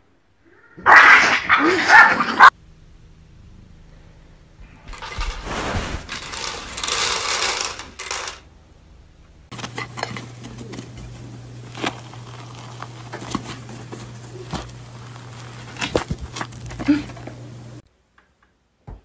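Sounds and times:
cat scrambling on bed sheet: 0:05.0 - 0:06.8
crisp crust tearing crackles: 0:10.4 - 0:17.1.

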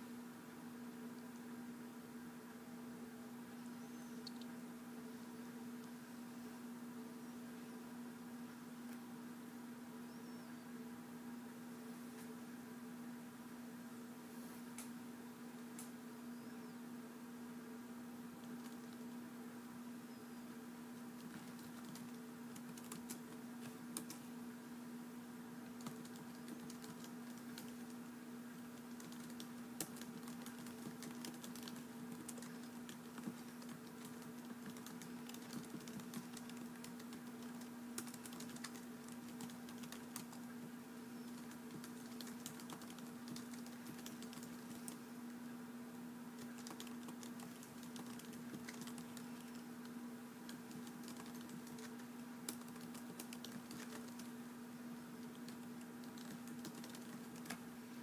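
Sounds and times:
steady low hum: 0:00.0 - 0:58.0
typing on a keyboard: 0:18.4 - 0:19.0, 0:21.2 - 0:24.2, 0:25.7 - 0:28.0, 0:28.8 - 0:40.4, 0:41.2 - 0:45.0, 0:46.4 - 0:54.3, 0:55.2 - 0:57.6.

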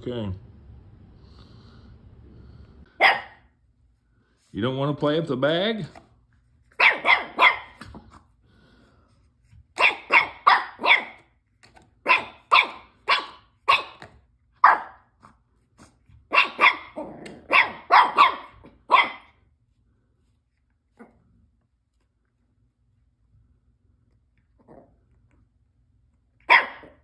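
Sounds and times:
puppy barking: 0:02.9 - 0:03.6, 0:06.7 - 0:08.0, 0:09.7 - 0:11.4, 0:12.0 - 0:15.4, 0:16.2 - 0:19.5, 0:26.4 - 0:27.0.

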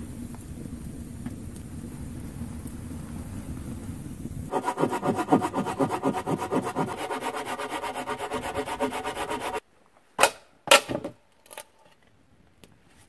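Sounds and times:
hand saw cutting log: 0:04.5 - 0:09.6.

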